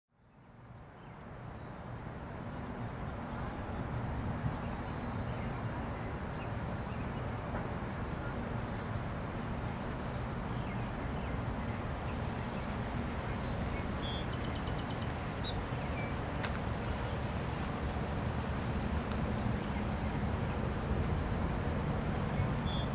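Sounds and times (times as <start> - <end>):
low outdoor rumble: 0.9 - 22.9
small bird chirping: 12.5 - 16.8.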